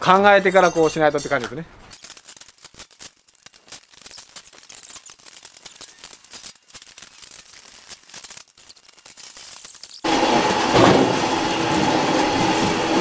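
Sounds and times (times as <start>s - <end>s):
small metal parts clicking and rattling: 0.4s - 10.1s.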